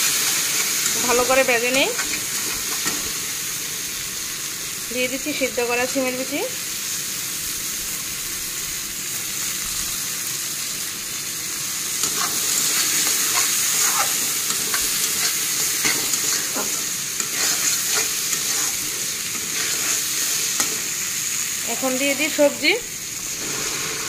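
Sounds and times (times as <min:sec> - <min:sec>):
beans sizzling in hot oil: 0:00.0 - 0:24.0
spatula scraping metal pan: 0:12.0 - 0:20.8.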